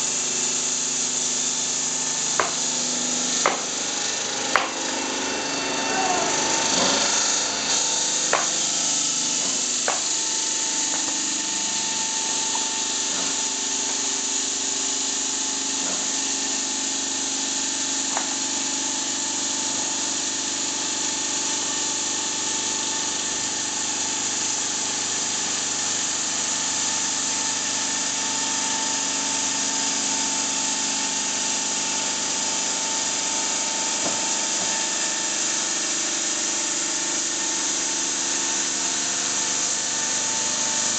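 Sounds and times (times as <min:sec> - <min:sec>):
motor hum: 0:00.0 - 0:16.4
saw blade grinding stone: 0:00.2 - 0:14.6.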